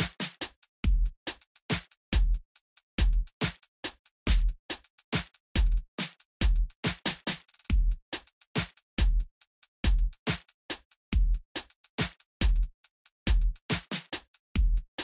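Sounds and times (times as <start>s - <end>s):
electronic music with drum-machine beat: 0.0s - 2.4s, 3.0s - 15.0s.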